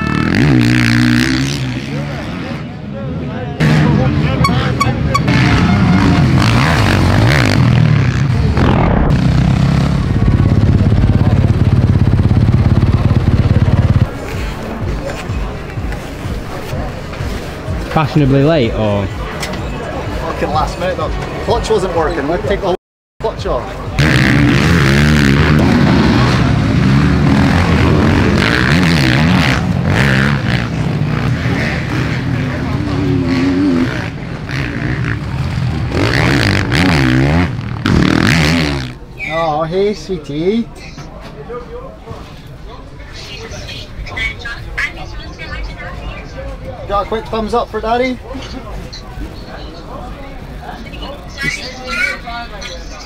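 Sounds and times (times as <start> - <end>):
motocross bike engines revving: 0.0 - 15.9, 23.6 - 40.3.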